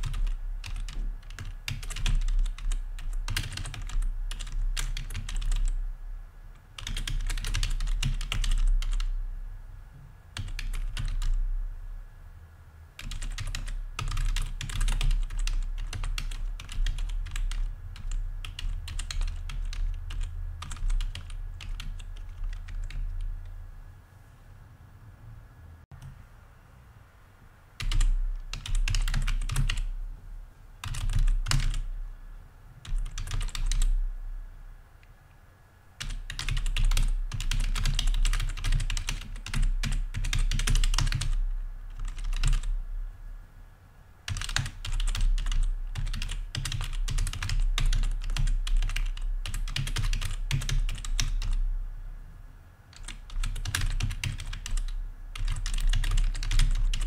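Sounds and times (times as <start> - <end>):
typing on computer keyboard: 0.0 - 5.8, 6.8 - 9.2, 10.4 - 11.4, 13.0 - 23.3, 27.8 - 29.9, 30.8 - 31.9, 32.8 - 34.0, 36.0 - 42.7, 44.3 - 51.6, 52.9 - 57.0.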